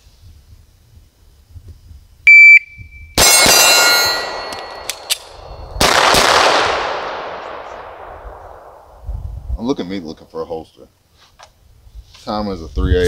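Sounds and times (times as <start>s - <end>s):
shot timer beep: 2.3s - 3.2s
steel target ringing: 3.2s - 5.8s
gunshots: 3.2s - 8.9s
gunshot echo: 3.2s - 9.0s
magazine clicks: 4.4s - 6.5s.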